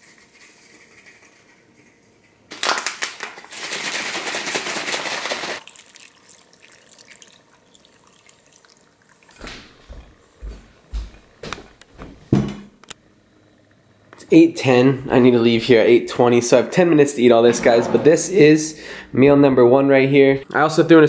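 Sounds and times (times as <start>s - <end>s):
cereal clattering rattle: 2.5s - 5.9s
milk pouring onto cereal: 3.7s - 9.4s.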